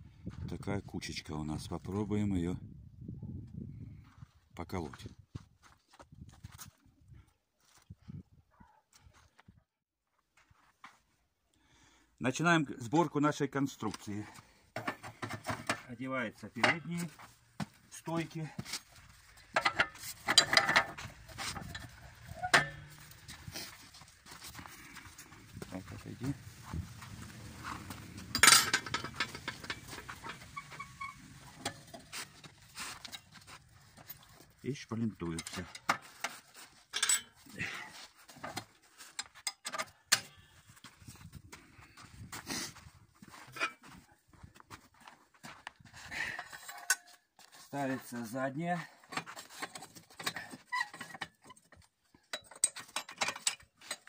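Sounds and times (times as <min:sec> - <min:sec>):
metal pipe knocks and clanks: 0:14.8 - 0:15.9, 0:19.4 - 0:23.4, 0:27.9 - 0:33.5, 0:35.3 - 0:37.4, 0:52.3 - 0:54.0
steel parts clinking and rattling: 0:18.8 - 0:25.3, 0:26.2 - 0:34.6, 0:35.2 - 0:37.5, 0:46.4 - 0:47.1, 0:49.1 - 0:54.0.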